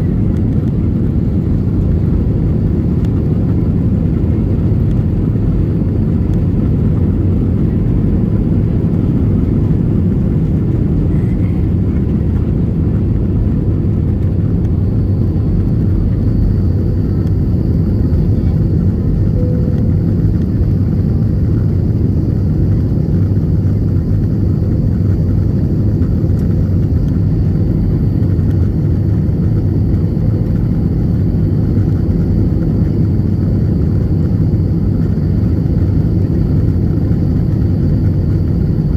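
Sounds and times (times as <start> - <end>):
jet engines low rumble: 0.0 - 38.9
faint high whine: 13.0 - 38.9.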